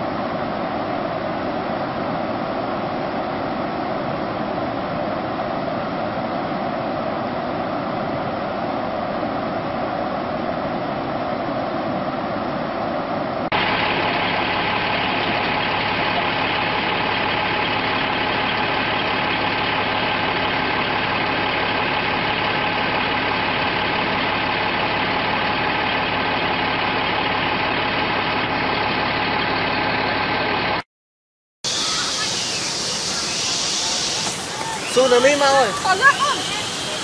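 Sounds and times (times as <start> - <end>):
floodwater rushing: 13.6 - 30.0, 31.7 - 37.0.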